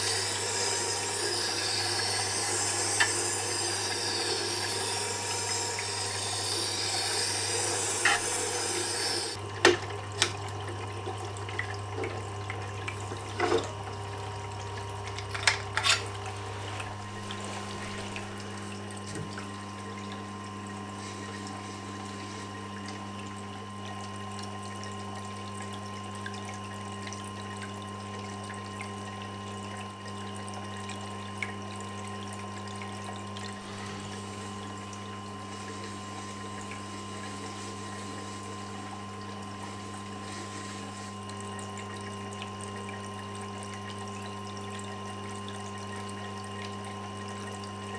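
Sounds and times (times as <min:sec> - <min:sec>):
grinder motor humming: 0:00.0 - 0:09.4
steel gouge grinding on wet stone: 0:00.0 - 0:09.4.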